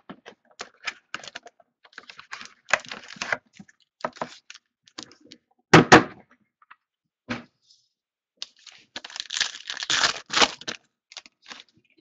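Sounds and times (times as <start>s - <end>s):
foil card packs rustling: 0.6s - 5.0s, 8.4s - 11.8s.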